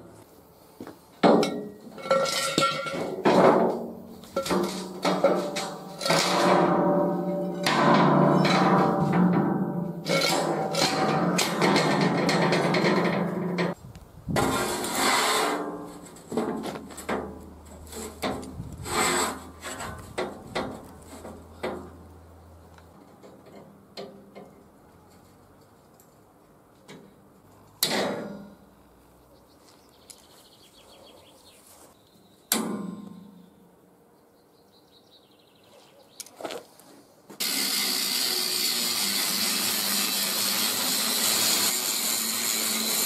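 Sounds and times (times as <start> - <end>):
steel bar scraping on steel plate: 2.0 - 13.8, 14.4 - 21.3.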